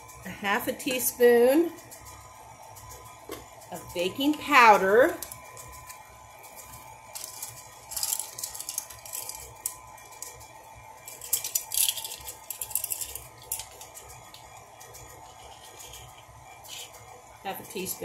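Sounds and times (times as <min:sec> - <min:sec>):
plastic measuring spoons rattling: 0:07.1 - 0:10.3, 0:11.1 - 0:14.4, 0:15.2 - 0:17.0.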